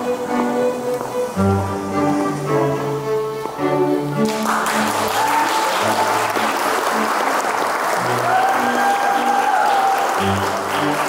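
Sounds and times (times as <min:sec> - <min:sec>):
instrumental music with held notes: 0:00.0 - 0:11.0
audience applause: 0:04.2 - 0:11.0.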